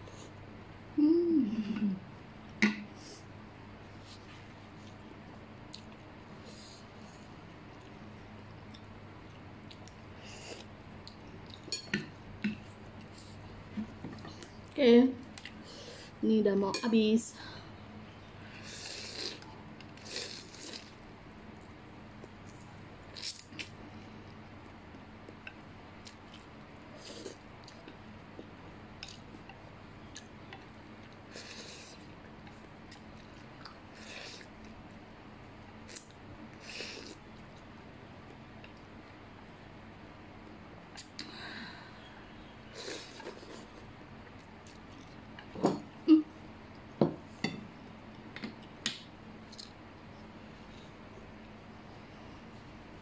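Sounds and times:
person slurping noodles: 0:20.0 - 0:20.9.

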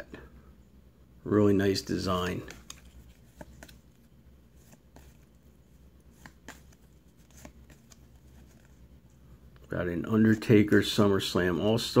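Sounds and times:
low steady hum: 0:00.0 - 0:12.0
cards being flipped: 0:02.2 - 0:08.9
soft clicks and slides of cards: 0:02.2 - 0:09.7.

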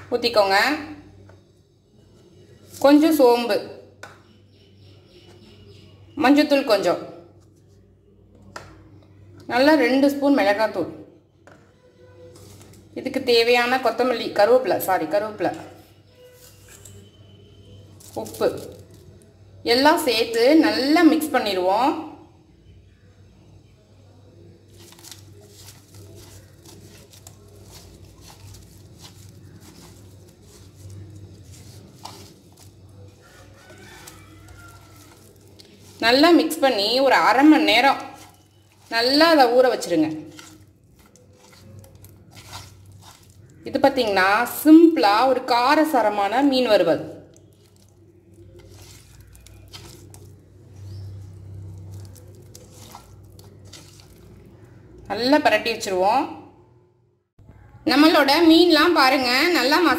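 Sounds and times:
hand squishing spice into fish: 0:24.6 - 0:43.9, 0:47.2 - 0:55.0.

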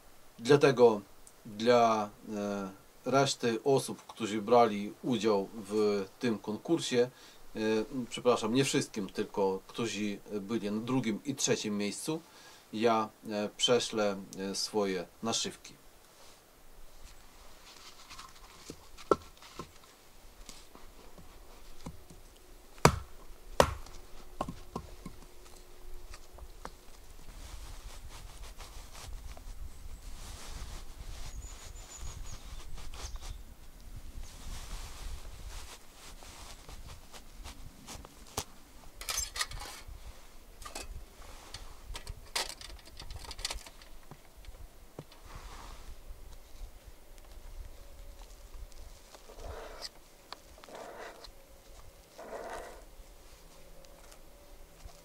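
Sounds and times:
sharp knocks: 0:22.8 - 0:24.9
sharp clicks and crunches: 0:41.5 - 0:45.2.

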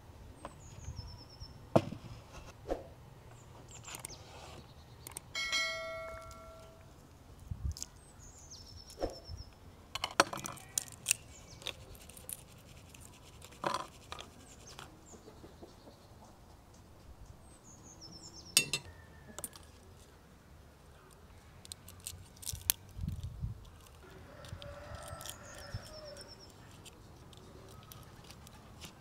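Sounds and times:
small bird chirping: 0:00.4 - 0:01.6, 0:07.8 - 0:09.6, 0:17.1 - 0:19.8, 0:24.6 - 0:29.0
kitchenware clinking on wooden table: 0:18.6 - 0:18.9.

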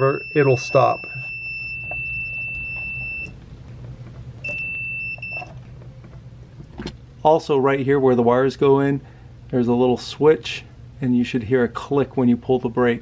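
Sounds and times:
multimeter continuity beeper tone: 0:00.0 - 0:03.4, 0:04.4 - 0:05.6.

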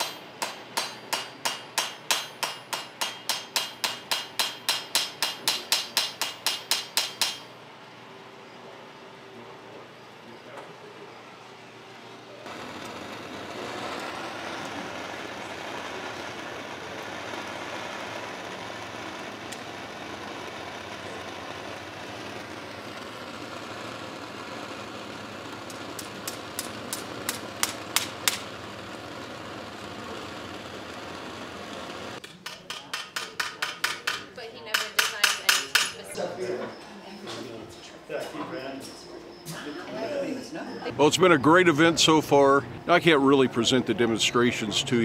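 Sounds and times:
sharp metallic taps: 0:00.0 - 0:07.5, 0:32.2 - 0:36.0.

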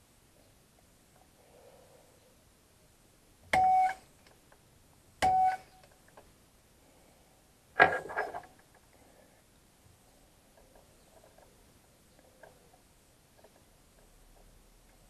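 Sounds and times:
center punch striking metal: 0:05.2 - 0:05.6.

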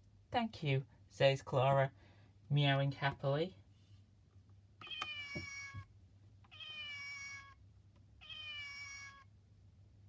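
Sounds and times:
recorded cat meow: 0:04.8 - 0:05.9, 0:06.5 - 0:07.6, 0:08.2 - 0:09.3.

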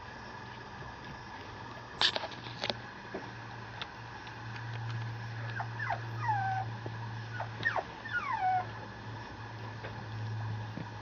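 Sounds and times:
steady low hum: 0:00.0 - 0:11.0
puppy whimpering: 0:05.4 - 0:06.7, 0:07.3 - 0:08.8.

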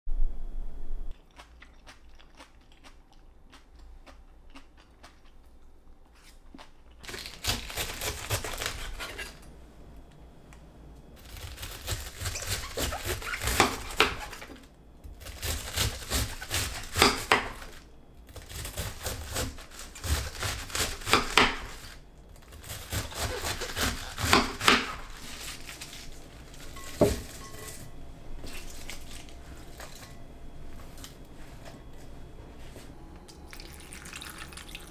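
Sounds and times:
knife slicing cabbage: 0:07.0 - 0:09.4, 0:11.2 - 0:27.8.

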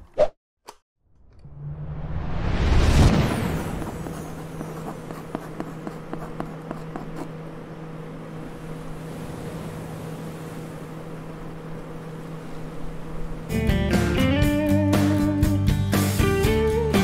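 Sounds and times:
steady low hum: 0:03.1 - 0:15.4.

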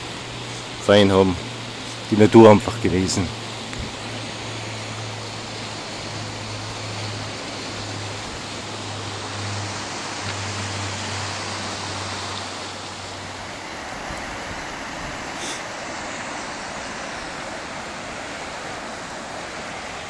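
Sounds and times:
river rushing over rocks: 0:00.0 - 0:20.0.

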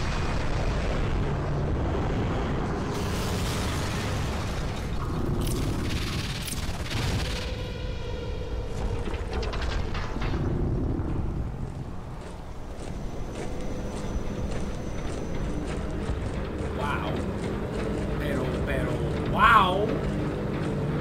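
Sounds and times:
booming surges: 0:00.0 - 0:12.7
continuous low rumble: 0:00.0 - 0:21.0
high mechanical whine: 0:00.0 - 0:21.0.

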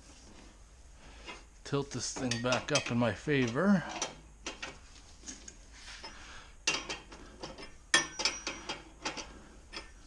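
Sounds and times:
metal clinking: 0:02.1 - 0:10.0.

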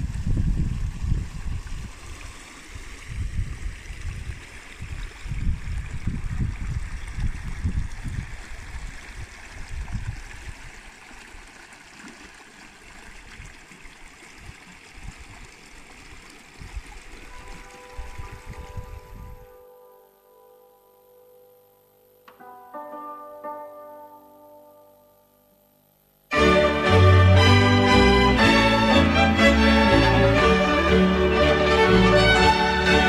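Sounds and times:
wind buffeting microphone: 0:00.0 - 0:10.9, 0:14.4 - 0:15.6, 0:16.6 - 0:19.6.

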